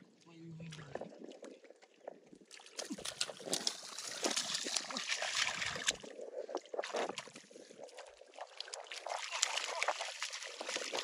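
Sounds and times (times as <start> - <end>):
hands splashing in muddy water: 2.5 - 11.0.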